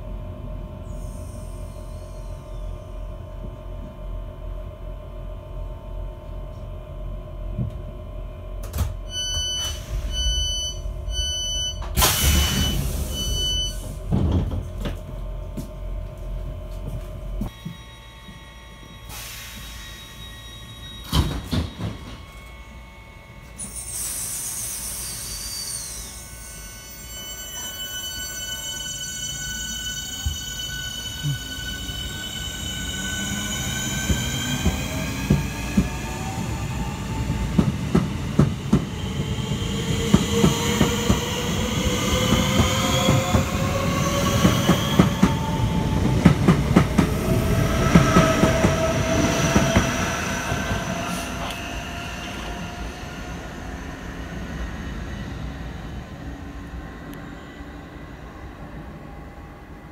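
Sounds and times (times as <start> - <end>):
approaching electric train whine: 0.0 - 59.9
electric train hum: 0.0 - 59.9
door warning beeps: 9.1 - 14.0
train doors sliding shut: 11.3 - 15.1, 21.0 - 22.3.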